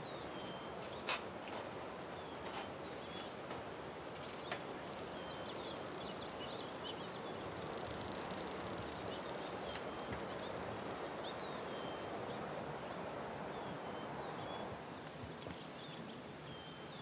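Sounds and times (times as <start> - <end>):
small birds chirping: 0.0 - 3.4, 4.1 - 17.0
soft background hiss: 0.0 - 17.0
faint clicks: 4.1 - 4.7, 6.1 - 10.5.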